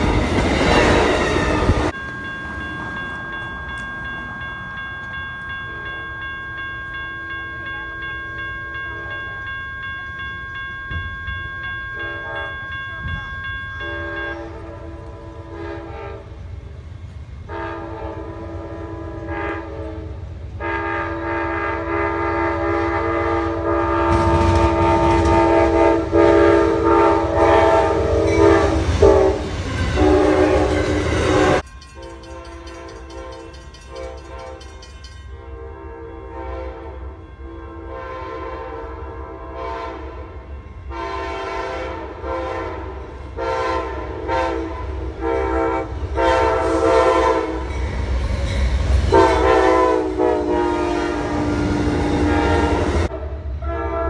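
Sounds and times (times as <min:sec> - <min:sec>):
locomotive air horn: 0:00.0 - 0:01.9, 0:13.8 - 0:16.4, 0:17.5 - 0:31.6, 0:35.4 - 0:47.8, 0:49.1 - 0:54.0
low rumble of train: 0:00.0 - 0:54.0.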